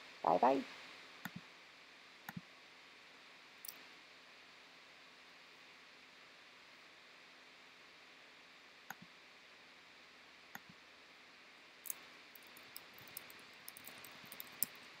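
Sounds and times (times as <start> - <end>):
faint steady hiss: 0.0 - 15.0
computer mouse clicks: 1.2 - 1.4, 11.9 - 14.8.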